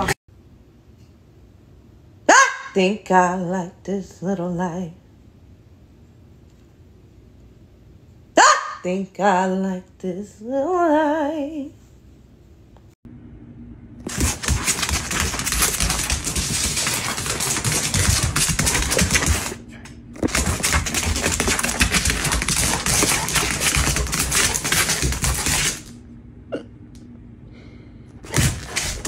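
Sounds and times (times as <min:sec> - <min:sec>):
dog claws clattering on wooden floor: 0:14.1 - 0:19.6, 0:20.2 - 0:25.9.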